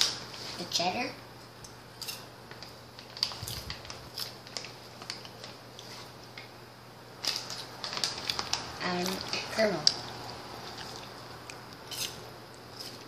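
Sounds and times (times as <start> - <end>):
snack pouch crinkling: 2.6 - 6.0, 7.2 - 11.2
chewing popcorn crunches: 7.2 - 13.0.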